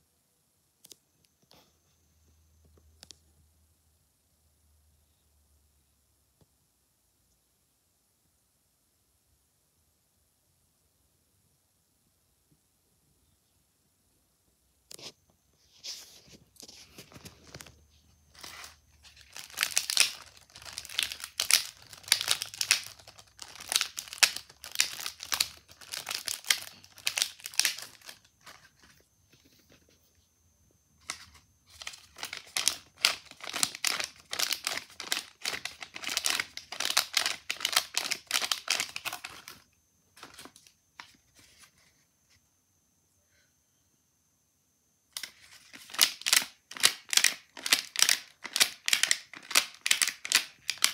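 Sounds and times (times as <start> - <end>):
paper and foil crinkling: 15.8 - 29.9, 31.0 - 39.6, 40.2 - 41.8, 45.2 - 50.9.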